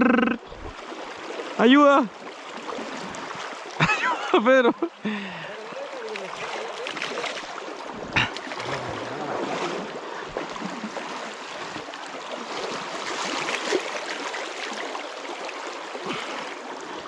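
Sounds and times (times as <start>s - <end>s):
flowing stream water: 0.0s - 17.0s
fish splashing and thrashing: 6.1s - 16.6s.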